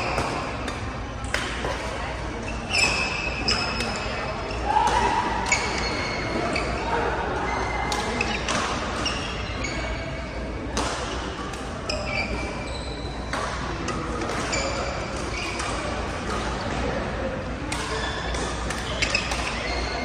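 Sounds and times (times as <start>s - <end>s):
racket hitting shuttlecock: 0.1s - 1.9s, 10.7s - 12.6s, 13.3s - 16.8s, 17.7s - 19.9s
shoes squeaking on court: 1.6s - 4.6s, 5.5s - 6.9s, 7.6s - 10.5s, 11.8s - 16.6s, 17.8s - 20.0s.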